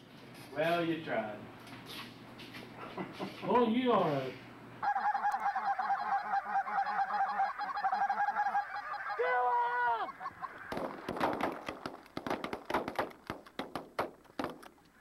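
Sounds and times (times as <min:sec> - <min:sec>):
geese honking: 0:04.8 - 0:11.8
sharp cracks: 0:10.5 - 0:15.0.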